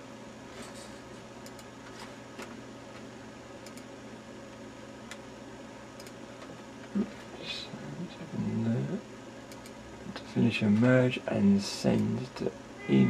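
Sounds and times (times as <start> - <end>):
steady low hum: 0.0 - 13.0
computer mouse clicks: 1.4 - 1.7, 3.6 - 3.9, 6.0 - 6.2, 9.5 - 9.8.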